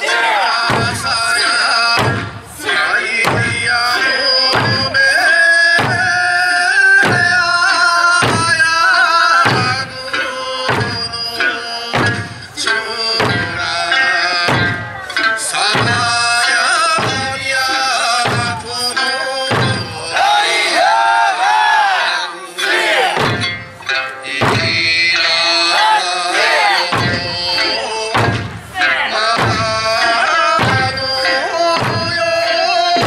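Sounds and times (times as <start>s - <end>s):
barrel drums and hand drums: 0.0s - 21.8s, 22.6s - 33.0s
folk song accompaniment: 0.0s - 33.0s.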